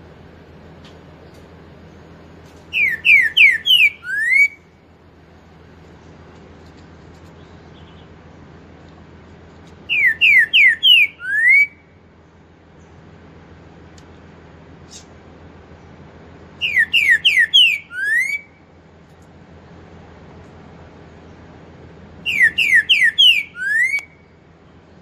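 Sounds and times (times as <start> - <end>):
bird singing whistled phrases: 2.7 - 4.7, 9.9 - 11.8, 16.6 - 18.6, 22.2 - 24.3.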